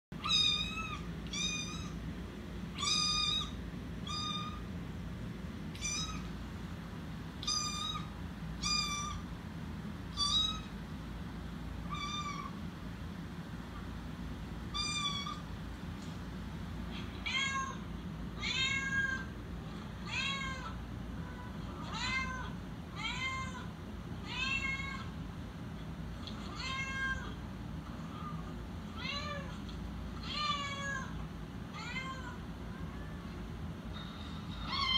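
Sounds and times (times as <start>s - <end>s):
cat meowing: 0.2s - 2.0s, 2.7s - 4.6s, 5.7s - 6.3s, 7.4s - 9.2s, 10.1s - 10.8s, 11.8s - 12.6s, 14.7s - 15.4s, 16.9s - 17.8s, 18.4s - 19.3s, 20.0s - 25.1s, 26.2s - 27.4s, 28.0s - 33.2s, 34.6s - 34.9s.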